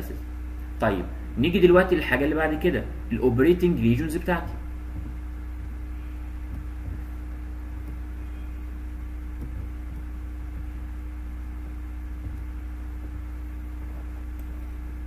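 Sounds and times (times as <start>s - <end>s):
low electrical hum: 0.0s - 15.0s
faint tone: 8.0s - 9.2s.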